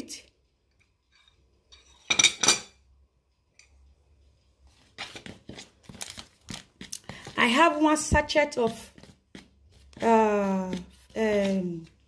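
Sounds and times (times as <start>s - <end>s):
dishes clinking: 1.2s - 2.9s.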